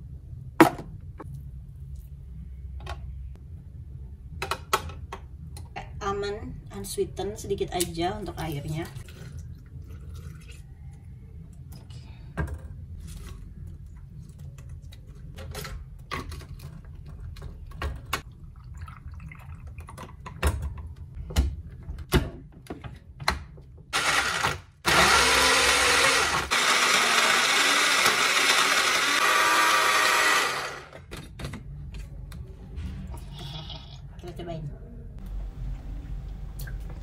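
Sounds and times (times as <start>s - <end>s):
blender motor running: 24.0s - 31.0s.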